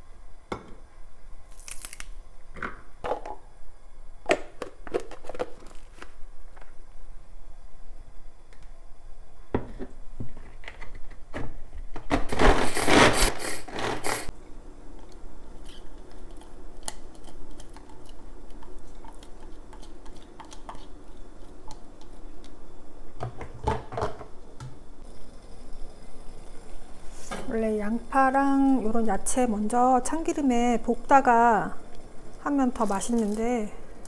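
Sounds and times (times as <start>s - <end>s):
chopped vegetables scraping onto plate: 12.1s - 14.3s.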